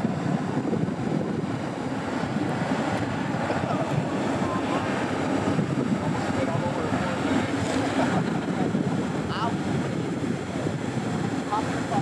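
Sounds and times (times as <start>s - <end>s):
ocean surf rushing: 0.0s - 12.0s
wind buffeting microphone: 0.0s - 12.0s.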